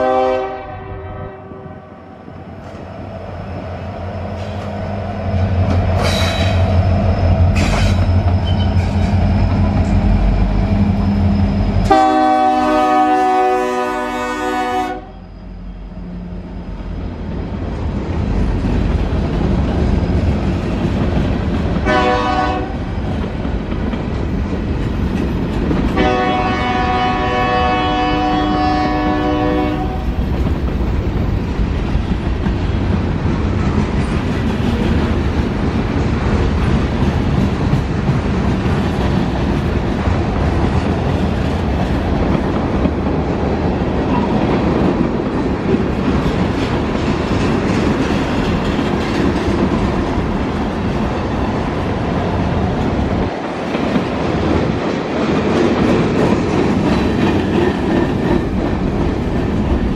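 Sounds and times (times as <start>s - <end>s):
locomotive horn chord: 0.0s - 2.0s, 11.9s - 15.2s, 21.8s - 22.8s, 26.0s - 30.0s
freight train wheels rumbling: 0.0s - 59.9s.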